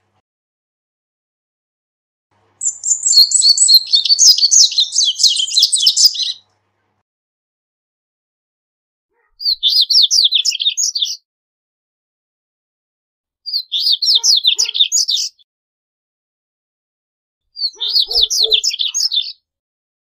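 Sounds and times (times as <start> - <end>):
bird singing high twittering: 2.6 - 6.4, 9.4 - 11.2, 13.5 - 15.4, 17.6 - 19.4.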